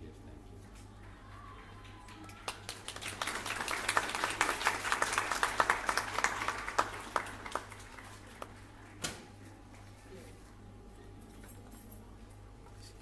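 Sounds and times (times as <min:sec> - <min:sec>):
audience applauding: 0:01.1 - 0:09.0.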